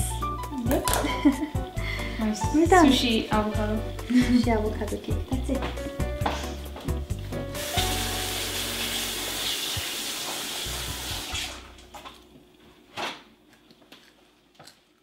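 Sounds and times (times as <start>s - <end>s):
water running from tap: 7.5s - 11.7s.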